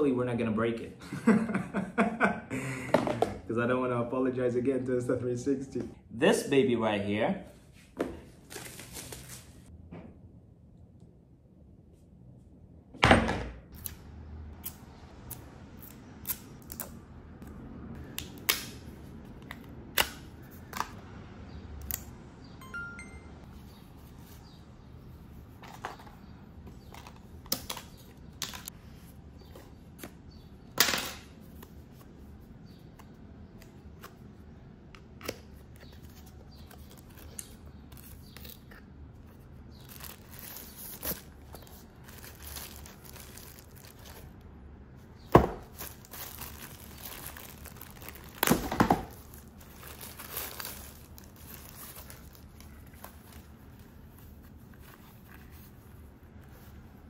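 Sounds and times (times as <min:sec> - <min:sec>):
plastic and paper crinkling: 0:08.4 - 0:09.7, 0:36.0 - 0:44.4, 0:45.5 - 0:56.8.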